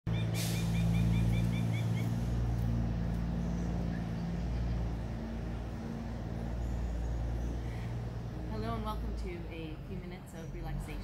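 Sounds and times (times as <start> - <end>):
bird chirping: 0.1 - 2.4, 3.2 - 8.3
engine humming: 0.1 - 11.0.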